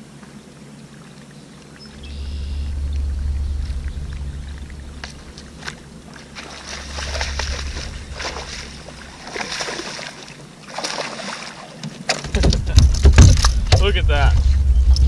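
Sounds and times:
fish splashing in water: 3.4 - 13.8
knocks and thumps on boat: 11.8 - 14.6.

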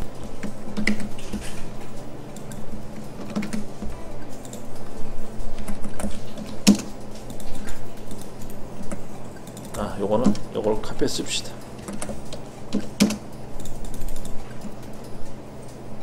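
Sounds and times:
low steady hum: 0.0 - 16.0
computer keyboard and mouse clicks: 0.4 - 1.6, 5.6 - 8.3, 8.9 - 10.5, 11.6 - 15.8.

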